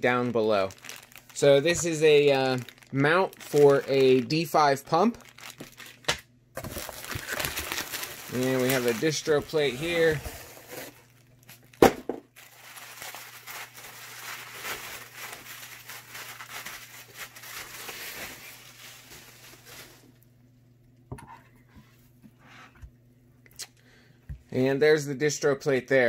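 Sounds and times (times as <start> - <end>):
bubble wrap crinkling: 0.0 - 20.3.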